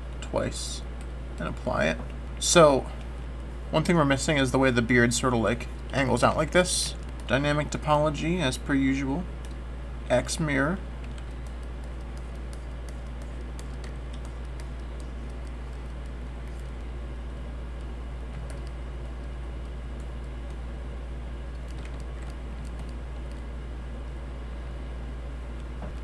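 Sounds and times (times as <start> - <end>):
low electrical hum: 0.0 - 26.0
computer keyboard clicking: 9.4 - 9.6, 11.0 - 16.9, 17.8 - 20.6, 21.5 - 23.5.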